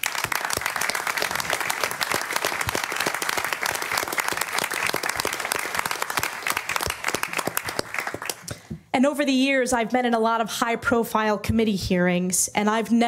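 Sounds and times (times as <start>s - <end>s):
audience applauding: 0.0s - 8.7s.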